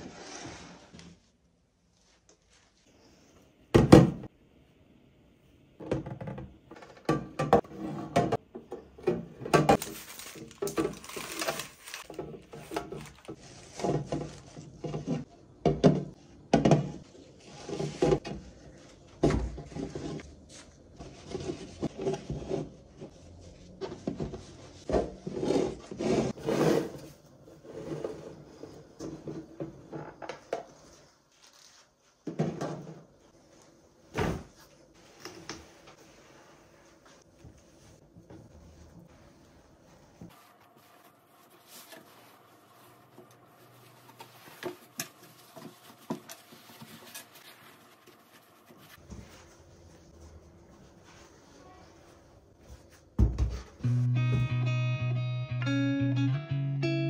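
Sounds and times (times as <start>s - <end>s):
plastic containers knocking and clattering: 5.8s - 17.0s
thuds on countertop: 53.2s - 53.6s.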